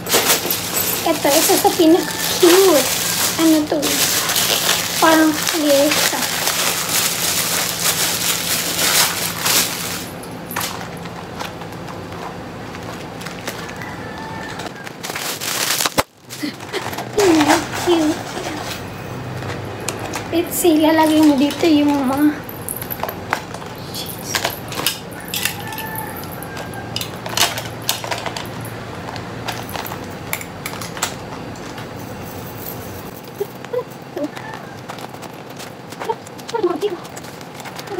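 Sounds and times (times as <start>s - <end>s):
metal chain clinking: 0.0s - 6.0s, 21.0s - 23.2s, 32.0s - 34.0s
plastic packaging crinkling: 0.0s - 37.9s.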